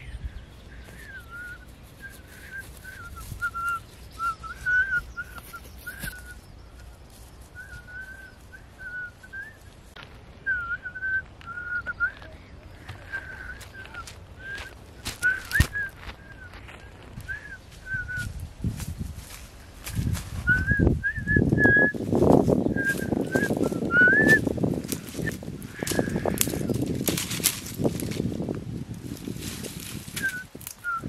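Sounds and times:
person whistling a tune: 0.9s - 6.4s, 7.6s - 9.6s, 10.5s - 12.3s, 13.1s - 16.6s, 17.2s - 18.4s, 20.4s - 22.0s, 22.7s - 24.5s, 30.2s - 31.0s.

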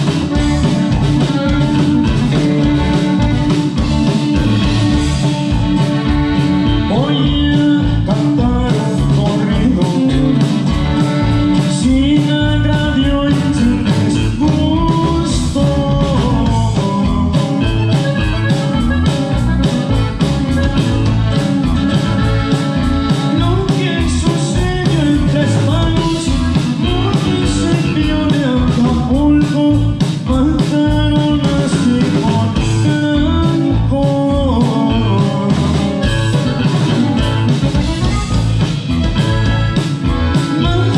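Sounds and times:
button accordion melody: 0.0s - 15.6s, 16.4s - 30.1s, 34.5s - 40.9s
live band playing: 0.0s - 40.9s
steady drum beat: 0.0s - 40.9s.

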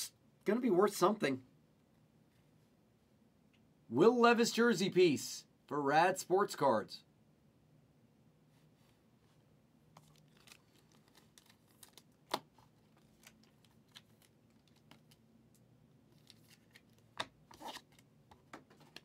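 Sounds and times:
wrapper rustle: 10.0s - 15.2s.

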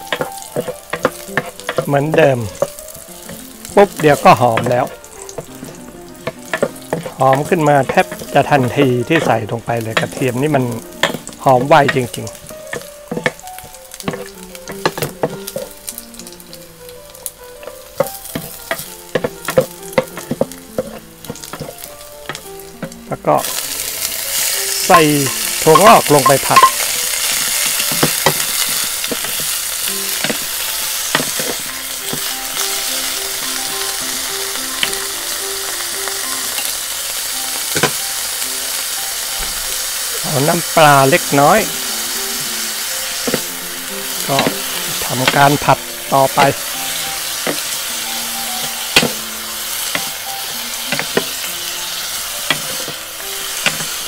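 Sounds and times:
spatula clacking against pan: 0.0s - 15.8s, 17.6s - 23.0s, 24.9s - 32.3s, 48.6s - 49.2s, 50.9s - 51.3s, 52.4s - 53.0s, 53.6s - 54.0s
bean sprouts sizzling in oil: 0.0s - 54.0s
spatula clicking against pan: 10.9s - 12.0s.

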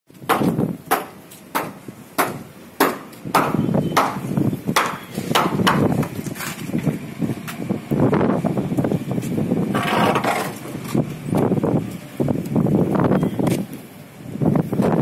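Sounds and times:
hand hammer striking: 0.3s - 6.1s
scraping and knocking: 9.7s - 11.0s.

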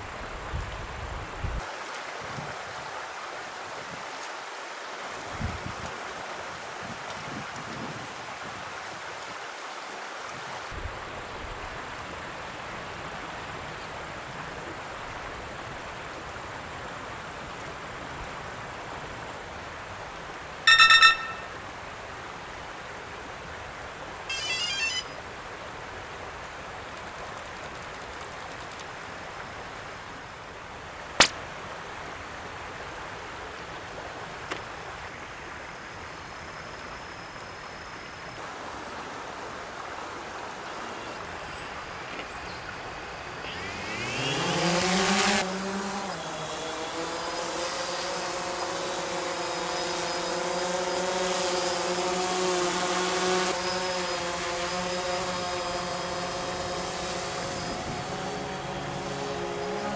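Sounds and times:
steady outdoor hiss: 0.0s - 59.9s
loud electronic beep: 20.7s - 21.6s, 24.3s - 25.2s
warbling electronic tones: 20.7s - 21.6s, 24.3s - 25.2s
drone propellers whining: 46.0s - 59.9s.

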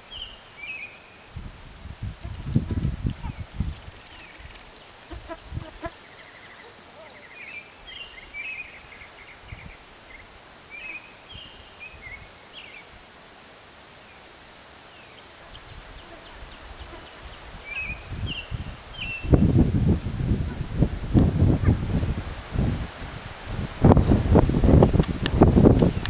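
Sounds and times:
horse hooves on grass: 1.4s - 12.2s, 19.4s - 26.0s
birds chirping: 2.3s - 12.9s.

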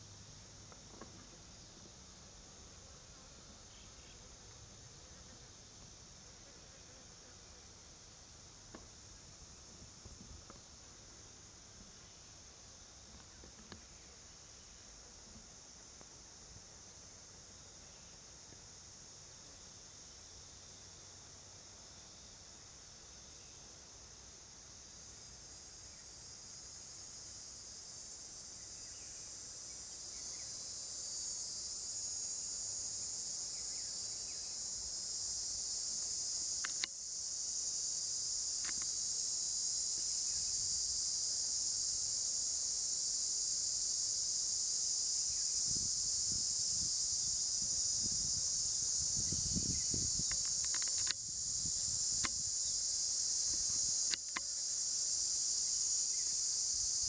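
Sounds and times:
insects chorus: 0.0s - 57.0s
brief clicks: 36.6s - 36.9s, 50.2s - 51.2s.

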